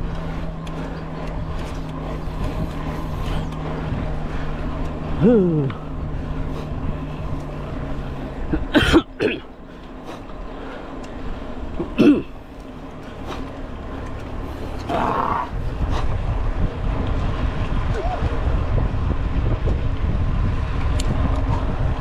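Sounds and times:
car driving hum: 0.0s - 22.0s
person clearing throat: 8.7s - 9.5s, 12.0s - 12.3s.

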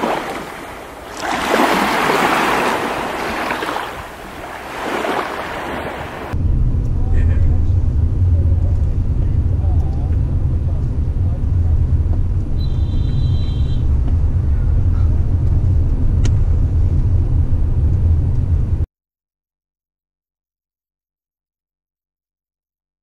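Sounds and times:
car interior road rumble: 6.2s - 18.9s.

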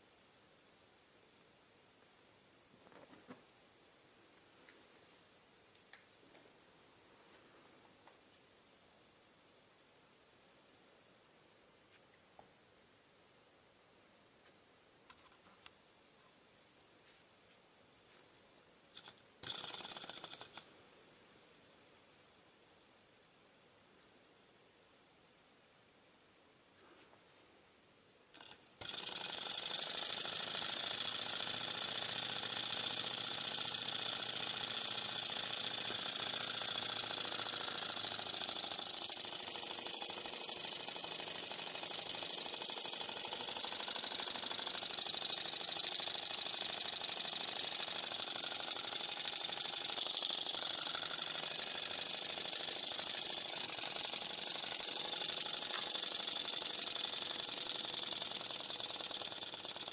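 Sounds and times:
flywheel clicks: 19.0s - 20.7s, 28.4s - 59.9s.

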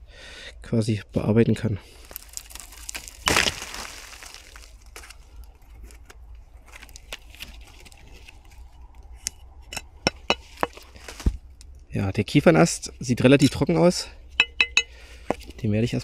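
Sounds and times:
twigs and dry leaves rustling: 1.8s - 11.9s
dry branch snapping: 2.1s - 6.1s.

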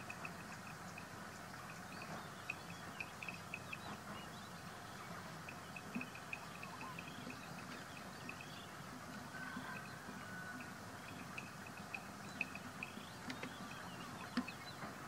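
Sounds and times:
animal chirps: 0.0s - 8.6s
steady background hiss: 0.0s - 15.0s.

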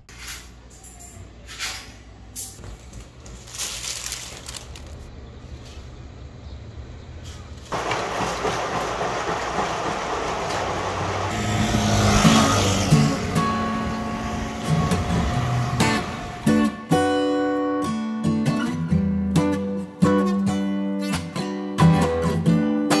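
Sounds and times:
washing machine running: 7.7s - 16.7s
guitar music: 11.3s - 23.0s.

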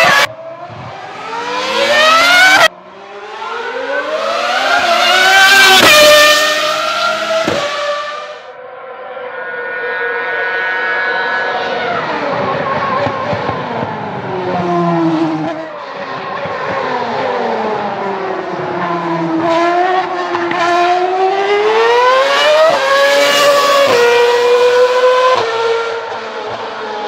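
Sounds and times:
racing car engine revving: 0.0s - 27.0s.

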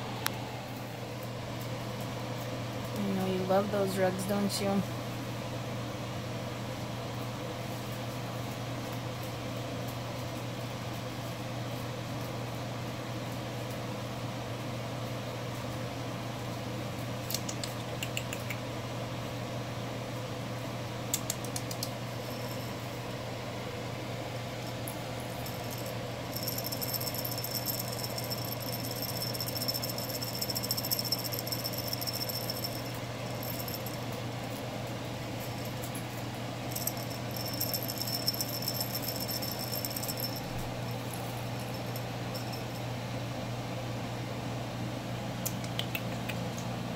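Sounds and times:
low room hum: 0.0s - 46.9s
high fast rattle: 25.3s - 34.2s, 35.4s - 42.8s.

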